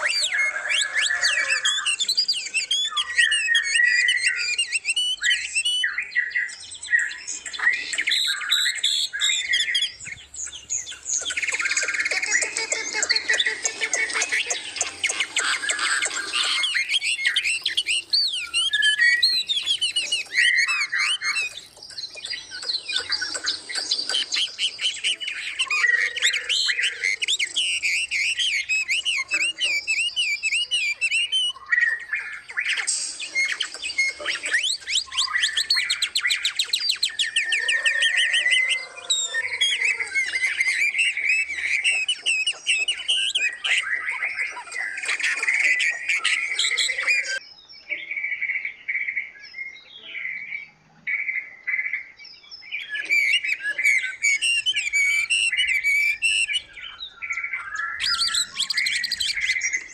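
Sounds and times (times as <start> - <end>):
harsh bird squawks: 0.0 - 47.4, 52.8 - 59.9
low gliding bird call: 0.0 - 47.4, 52.8 - 59.9
songbirds chirping and trilling: 0.0 - 59.9.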